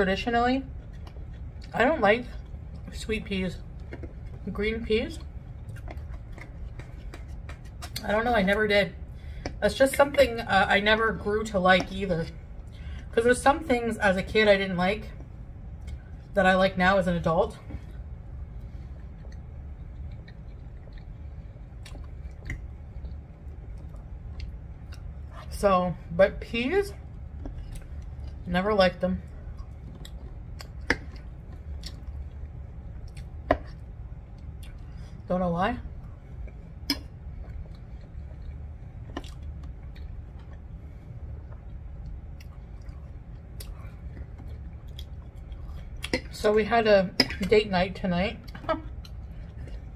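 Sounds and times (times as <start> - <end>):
low steady hum: 0.0 - 49.9
person chewing soft food: 0.7 - 2.9, 5.2 - 8.0, 17.7 - 25.5, 27.0 - 28.5, 29.3 - 35.3, 35.9 - 46.4, 48.4 - 49.9.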